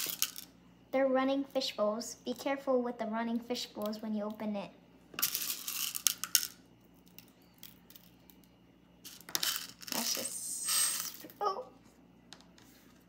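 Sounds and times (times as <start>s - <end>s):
plastic beads clicking and rattling: 0.0s - 0.5s, 5.2s - 8.5s, 9.1s - 11.3s.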